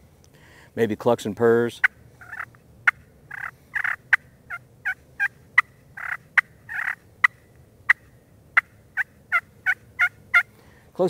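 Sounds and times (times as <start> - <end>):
turkey call clucks and purrs: 1.8 - 10.5.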